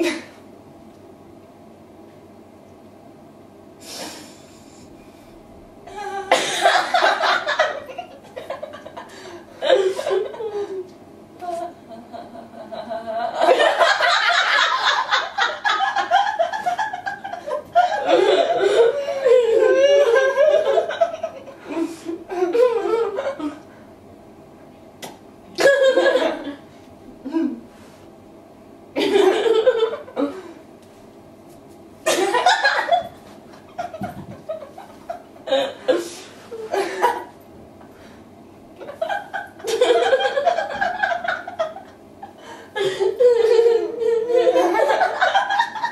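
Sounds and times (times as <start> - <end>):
women laughing: 5.9 - 10.9, 11.5 - 23.6, 29.0 - 30.3, 32.1 - 37.3, 38.8 - 45.9.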